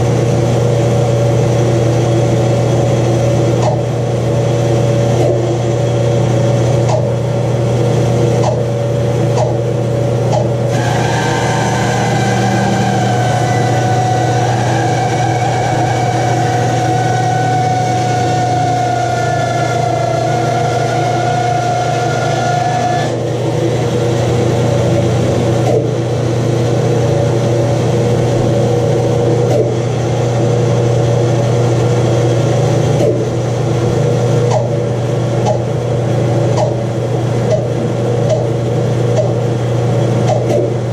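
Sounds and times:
bandsaw humming: 0:10.7 - 0:23.2
high wavering whine: 0:10.7 - 0:40.0.

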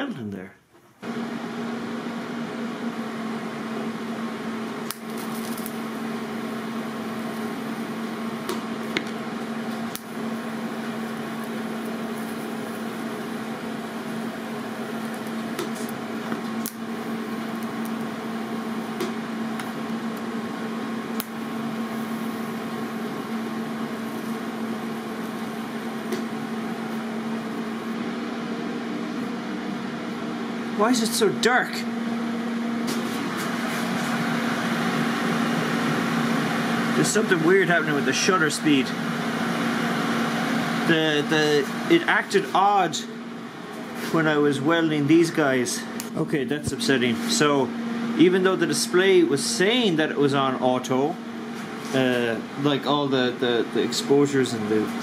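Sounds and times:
welding arc buzzing: 0:01.0 - 0:55.0.

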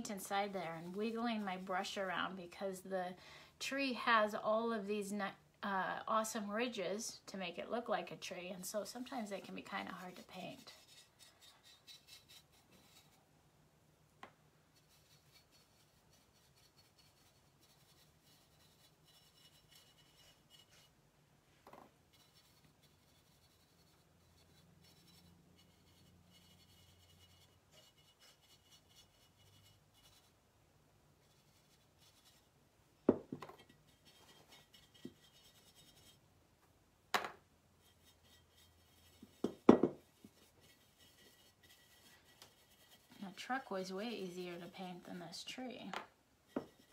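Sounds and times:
brush scrubbing paint: 0:08.6 - 0:13.2, 0:14.7 - 0:21.0, 0:22.1 - 0:30.4, 0:31.2 - 0:32.6, 0:33.6 - 0:36.2, 0:37.8 - 0:45.7, 0:46.5 - 0:46.9.

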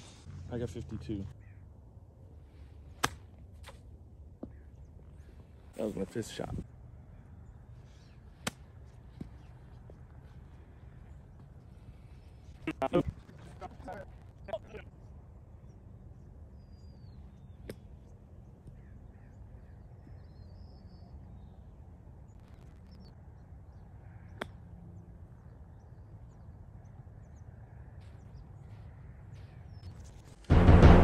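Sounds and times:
low wind rumble: 0:00.0 - 0:31.0
bird chirps: 0:14.3 - 0:30.3.

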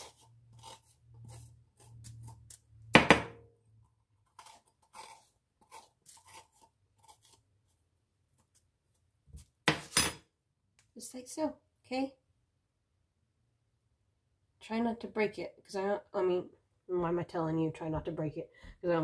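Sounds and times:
spoon scraping bell pepper: 0:00.0 - 0:02.9, 0:03.9 - 0:07.8.

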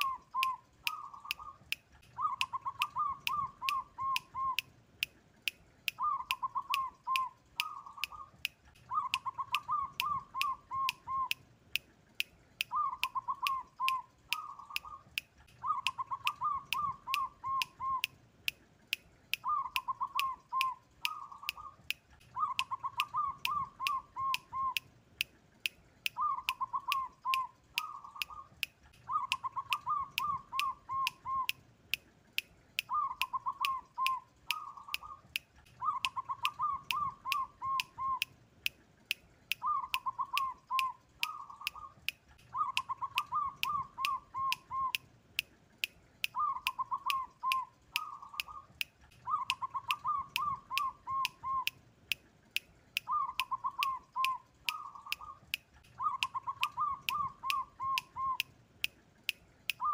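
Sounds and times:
dove cooing: 0:00.0 - 0:04.7, 0:06.0 - 0:08.3, 0:08.9 - 0:11.4, 0:12.7 - 0:15.0, 0:15.6 - 0:18.1, 0:19.4 - 0:24.8, 0:26.2 - 0:28.5, 0:29.1 - 0:31.6, 0:32.9 - 0:35.2, 0:35.8 - 0:38.3, 0:39.6 - 0:45.0, 0:46.4 - 0:51.7, 0:53.1 - 0:55.4, 0:56.0 - 0:58.4
fast steady ticking: 0:00.0 - 0:59.9.

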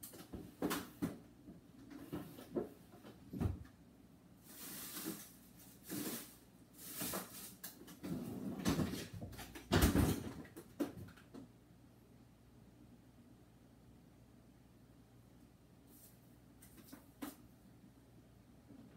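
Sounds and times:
rustling: 0:04.4 - 0:08.2.

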